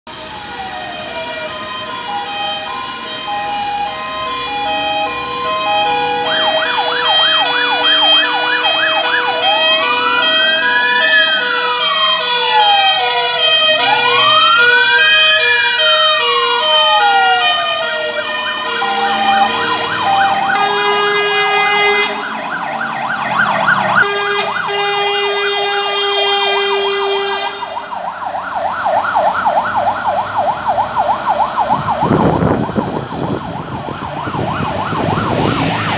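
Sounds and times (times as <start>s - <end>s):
fire engine sirens: 0.1s - 35.9s
air horn blasts: 18.1s - 22.5s, 24.0s - 27.8s.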